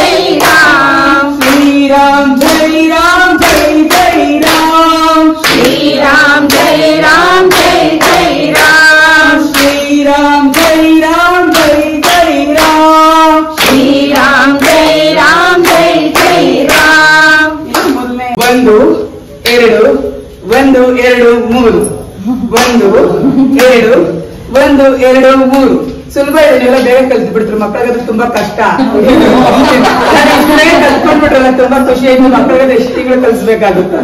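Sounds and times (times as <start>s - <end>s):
hand claps keeping a beat: 0.0s - 19.9s, 22.5s - 23.9s
devotional singing: 0.0s - 21.8s.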